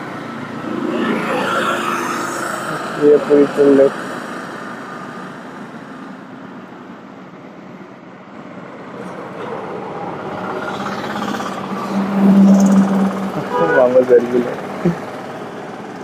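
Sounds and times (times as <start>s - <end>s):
road traffic rush: 0.0s - 16.0s
steady low tone: 11.5s - 14.6s.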